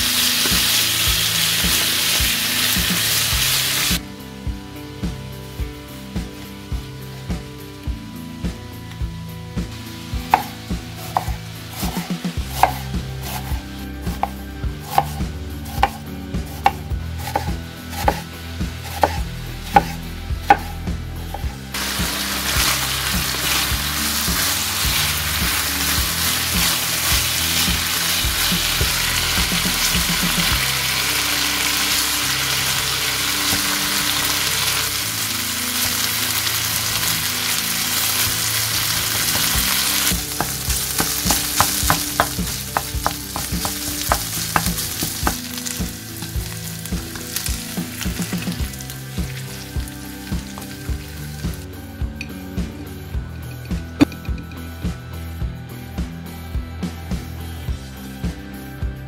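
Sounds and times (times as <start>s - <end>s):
sausages sizzling in oil: 0.0s - 4.0s, 21.3s - 51.8s
knife chopping on wooden board: 11.1s - 18.2s, 18.8s - 20.7s, 39.5s - 45.4s.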